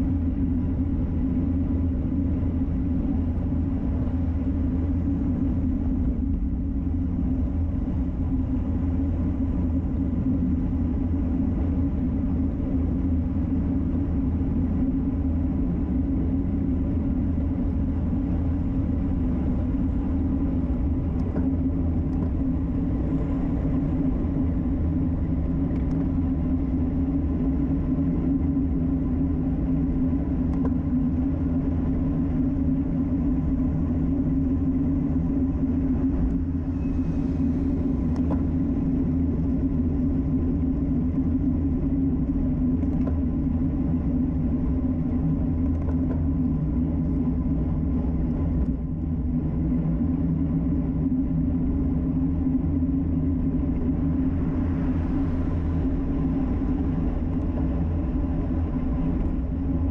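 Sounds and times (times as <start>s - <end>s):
wind rush: 0.0s - 59.9s.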